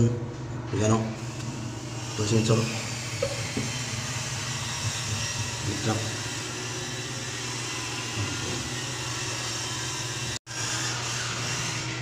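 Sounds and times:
steady machine hum: 0.0s - 12.0s.

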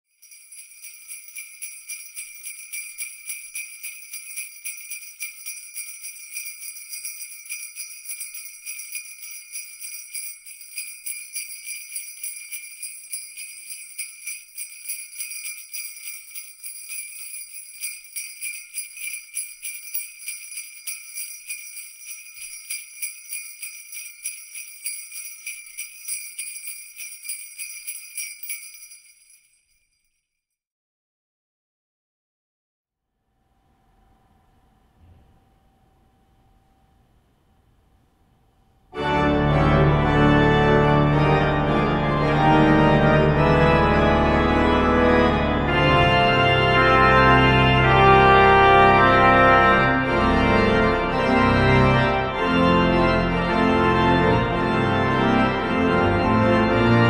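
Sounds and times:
sleigh bells jingling: 0.1s - 30.4s.

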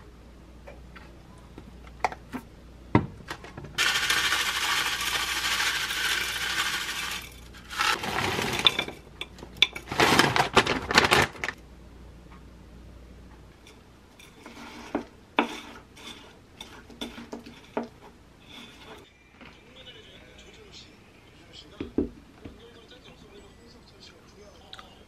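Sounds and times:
plastic bag crinkling: 9.7s - 11.6s.

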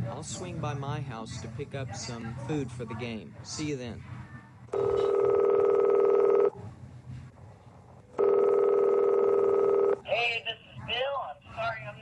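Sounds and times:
electronic telephone ringing: 4.7s - 6.6s, 8.2s - 10.0s.

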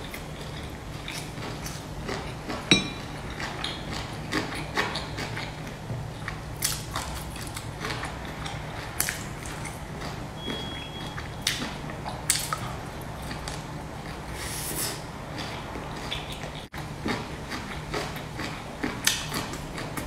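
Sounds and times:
steady low hum: 0.0s - 20.0s
sharp ringing clink: 2.7s - 3.0s
wet chewing: 14.9s - 20.0s.

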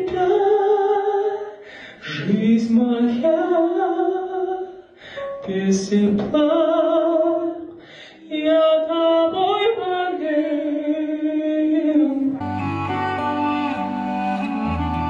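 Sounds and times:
man singing a ballad: 0.0s - 12.4s
keyboard accompaniment: 5.2s - 5.7s, 12.4s - 15.0s
slow string music: 12.4s - 15.0s.

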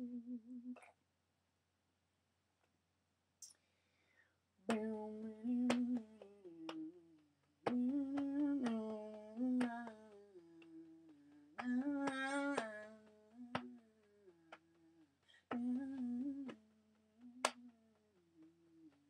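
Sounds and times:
person humming: 0.0s - 0.9s, 4.7s - 16.6s.

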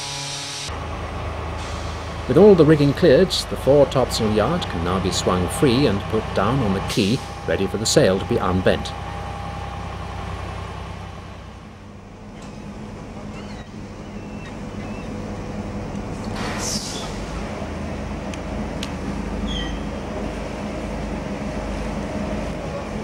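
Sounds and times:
crane diesel engine running: 0.0s - 23.0s
air hiss: 16.2s - 17.5s.

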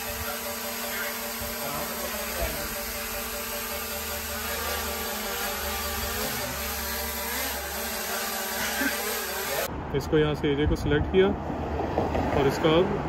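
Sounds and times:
drone propellers whining: 0.0s - 9.7s.

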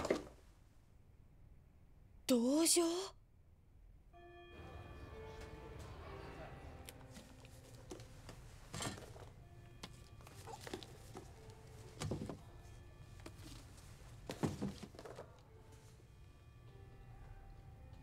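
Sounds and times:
soft background music: 4.2s - 18.0s.

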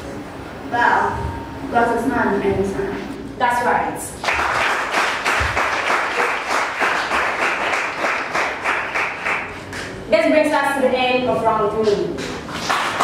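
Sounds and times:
audience applauding: 4.2s - 10.0s, 12.4s - 13.0s.

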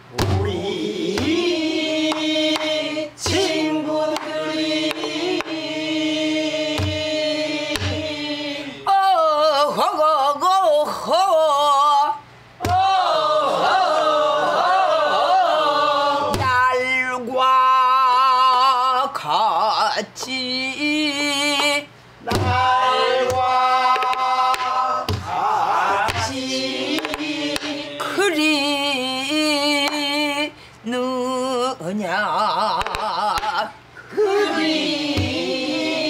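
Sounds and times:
barrel drum beats: 0.0s - 1.5s, 6.7s - 7.1s, 7.8s - 8.1s, 22.3s - 25.3s, 35.1s - 35.5s
woman singing folk song: 28.0s - 33.8s.

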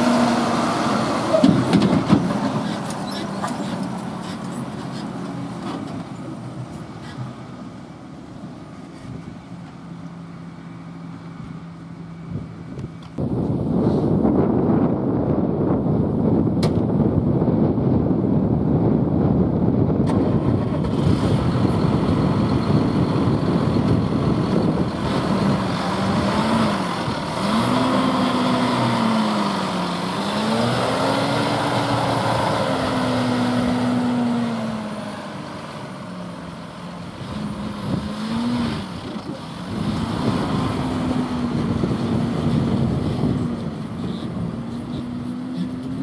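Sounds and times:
tractor diesel engine: 0.0s - 46.0s
wind rumbling on microphone: 12.2s - 35.1s, 37.0s - 46.0s.

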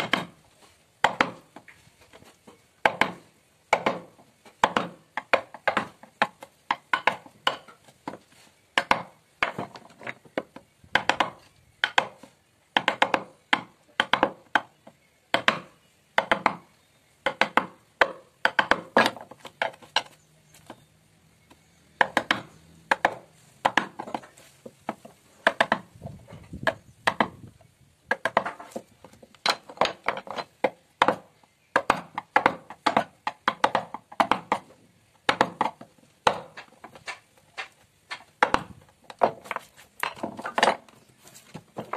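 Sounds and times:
mallet striking chisel: 0.0s - 0.3s, 1.0s - 1.4s, 2.8s - 7.8s, 15.3s - 16.6s, 17.2s - 20.1s, 22.0s - 24.2s, 35.3s - 38.7s.

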